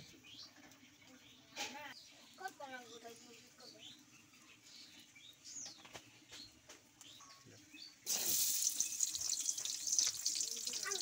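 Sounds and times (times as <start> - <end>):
oil trickling into pan: 8.0 - 11.0
onions sizzling in oil: 8.0 - 11.0.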